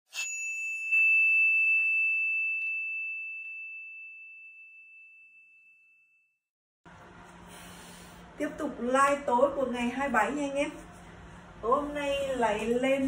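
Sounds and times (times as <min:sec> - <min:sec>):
high bell-like ding: 0:00.1 - 0:06.3.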